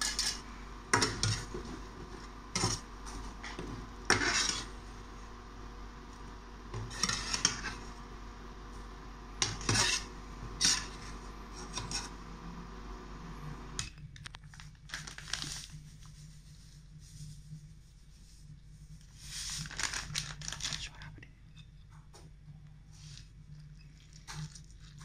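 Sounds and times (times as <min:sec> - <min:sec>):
metal skimmer scraping a pan: 0:00.0 - 0:04.9, 0:06.7 - 0:07.9, 0:09.4 - 0:12.2
steady hum: 0:00.0 - 0:25.0.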